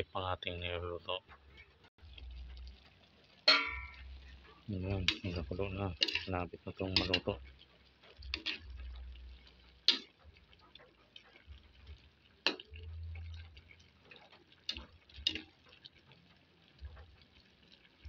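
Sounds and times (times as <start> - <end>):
metal ladle tapping a wok: 3.5 - 4.2, 6.0 - 6.3.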